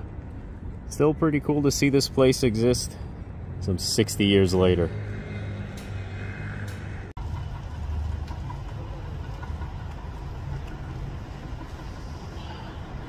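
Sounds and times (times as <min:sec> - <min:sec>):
subway train rumbling: 0:07.2 - 0:13.0.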